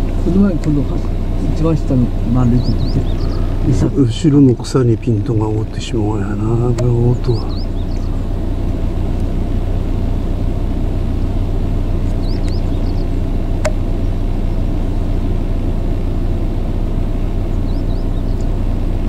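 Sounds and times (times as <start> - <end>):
road traffic rumble: 0.0 - 19.0
faint bird chirps: 2.4 - 3.8, 7.1 - 8.7, 12.0 - 13.2, 17.4 - 18.6
sharp click: 6.7 - 7.0, 13.6 - 13.8.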